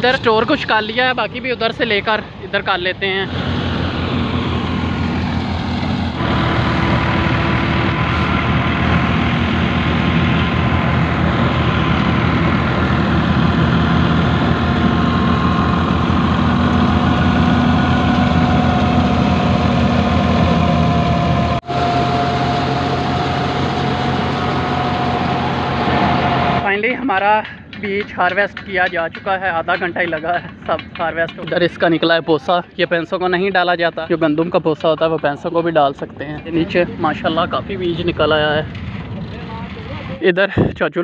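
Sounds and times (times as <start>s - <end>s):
deep engine drone: 0.0s - 27.8s, 36.0s - 40.2s
threshing machine whine: 3.0s - 27.0s.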